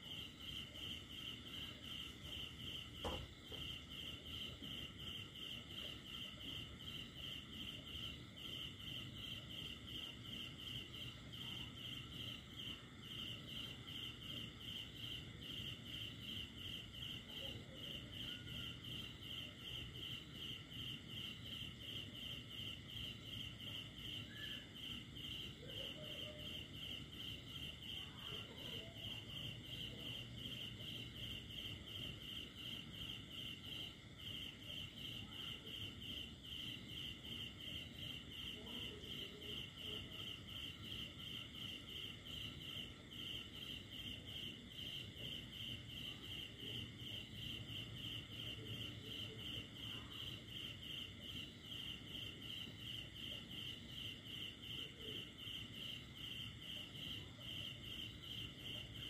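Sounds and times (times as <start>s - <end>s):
cricket chirping: 0.0s - 59.0s.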